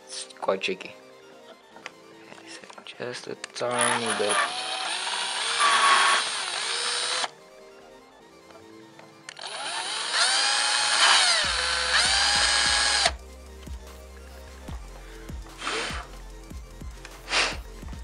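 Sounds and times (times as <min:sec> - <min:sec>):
electric drill drilling metal: 0:03.6 - 0:07.3, 0:09.3 - 0:13.2, 0:15.6 - 0:16.1.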